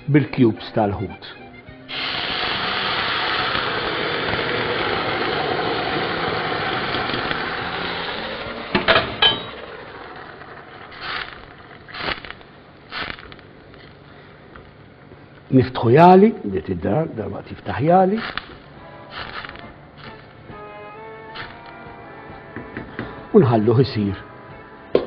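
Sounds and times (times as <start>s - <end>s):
stock sizzling in hot pan: 1.9s - 14.1s, 17.6s - 22.4s.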